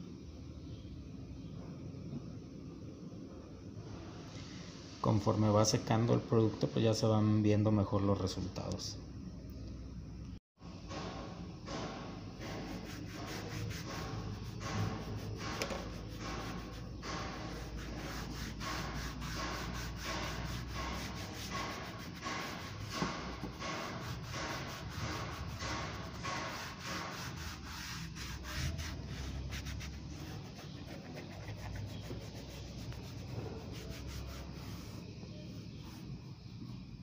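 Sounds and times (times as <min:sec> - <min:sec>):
pad scrubbing plastic panel: 0:12.4 - 0:35.0.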